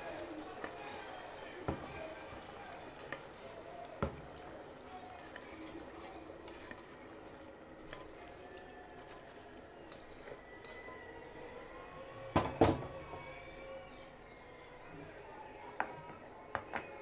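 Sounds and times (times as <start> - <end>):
liquid pouring and bubbling: 0.0 - 11.8.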